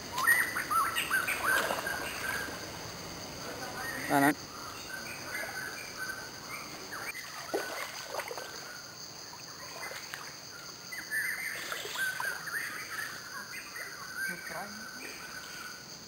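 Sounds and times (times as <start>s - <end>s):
birds chirping: 0.0s - 16.0s
high insect drone: 0.0s - 16.0s
water sloshing and splashing: 1.3s - 2.8s, 7.1s - 8.7s.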